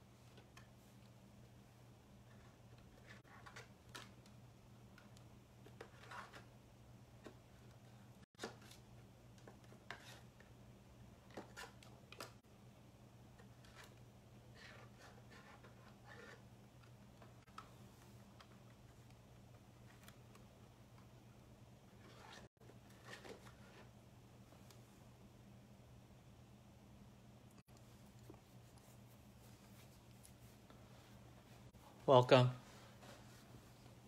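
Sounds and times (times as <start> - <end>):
faint low hum: 0.0 - 34.0
faint clicks and rustles: 27.5 - 31.8.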